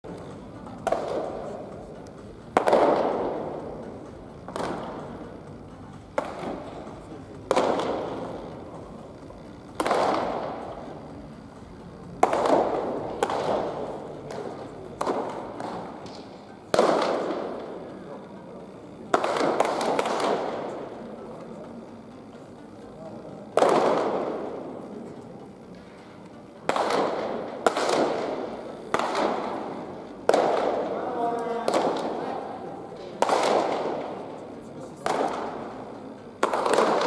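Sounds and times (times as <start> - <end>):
baseballs smacking into mitts: 0.8 - 1.6, 2.6 - 3.9, 4.5 - 5.0, 6.2 - 6.8, 7.4 - 8.6, 12.2 - 17.7, 19.2 - 20.6, 26.7 - 32.2, 33.0 - 34.2, 36.4 - 37.0.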